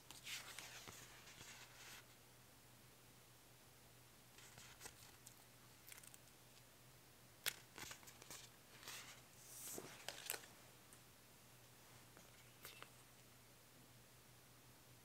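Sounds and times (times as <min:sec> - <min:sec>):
paper rustling and crinkling: 0:04.4 - 0:06.2, 0:07.5 - 0:10.5.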